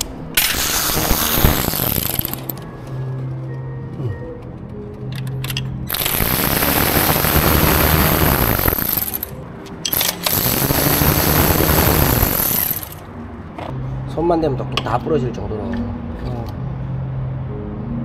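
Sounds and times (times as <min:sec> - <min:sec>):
background music: 0:00.0 - 0:18.0
loud hissing bursts: 0:00.5 - 0:02.5, 0:05.9 - 0:09.3, 0:10.2 - 0:13.0.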